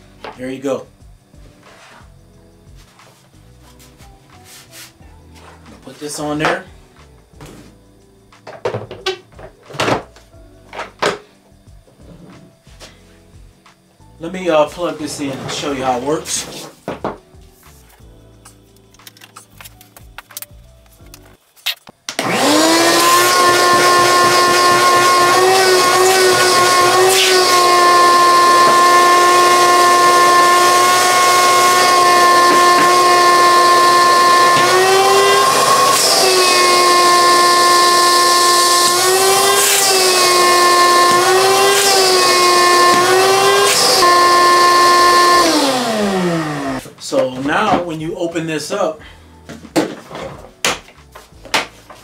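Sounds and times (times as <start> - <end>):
shop vacuum motor whining: 14.5 - 16.7, 22.1 - 46.9.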